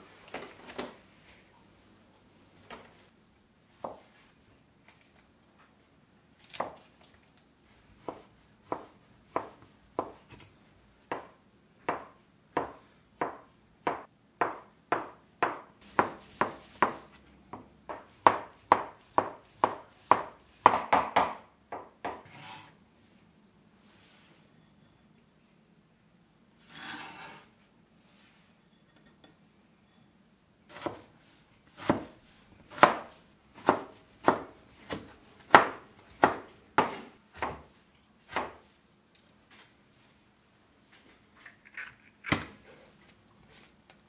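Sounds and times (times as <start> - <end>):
knife chopping on wooden board: 8.0 - 10.2, 11.9 - 22.3, 30.7 - 31.1, 31.7 - 37.7, 38.3 - 38.6.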